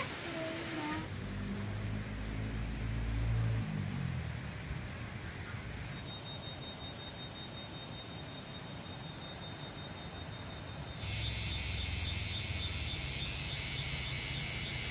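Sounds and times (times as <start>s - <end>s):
crickets chirping: 6.0s - 14.9s.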